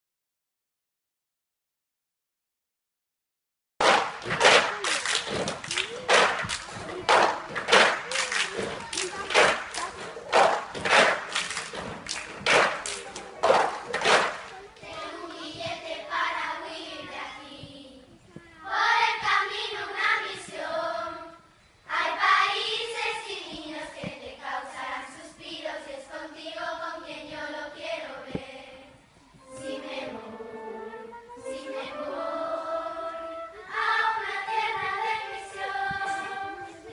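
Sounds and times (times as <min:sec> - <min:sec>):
clapping: 0:03.8 - 0:14.7
children singing together: 0:12.6 - 0:36.9.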